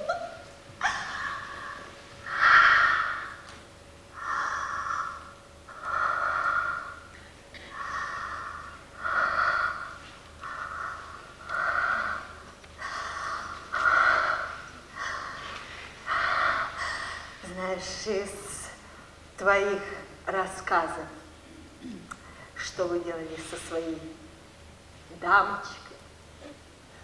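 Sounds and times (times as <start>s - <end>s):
person breathing heavily: 4.1s - 17.5s.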